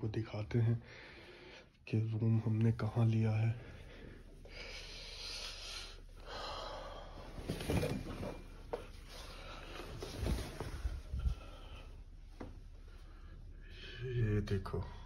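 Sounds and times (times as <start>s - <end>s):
curtains rustling: 7.3s - 11.8s.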